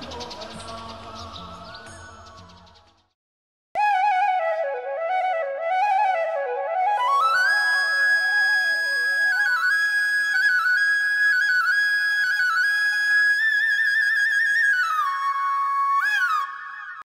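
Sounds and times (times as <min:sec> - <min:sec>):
bamboo flute melody: 0:03.8 - 0:17.0.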